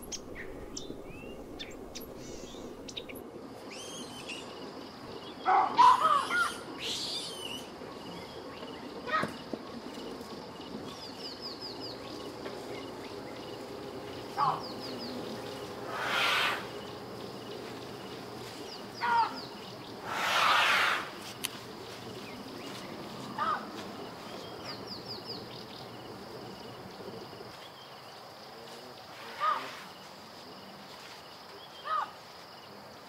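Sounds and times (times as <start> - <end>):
outdoor background noise: 0.0 - 33.0
brief hissing rushes: 20.0 - 21.2.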